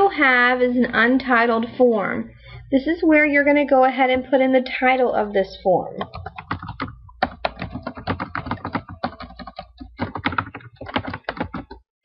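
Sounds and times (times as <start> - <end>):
typing on computer keyboard: 6.0 - 11.8.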